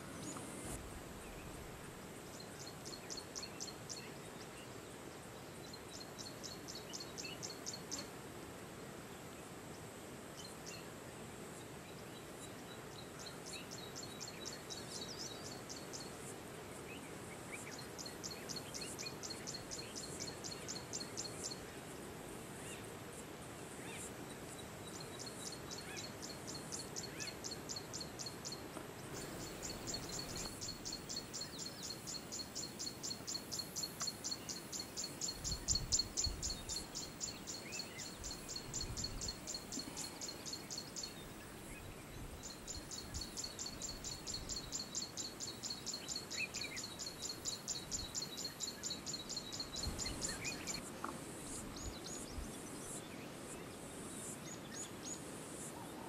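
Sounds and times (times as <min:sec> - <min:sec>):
faint chirps: 0:23.8 - 0:56.0.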